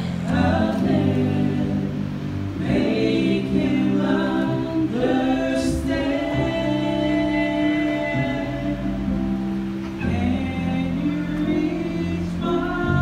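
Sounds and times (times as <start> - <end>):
woman and man singing gospel: 0.0 - 13.0.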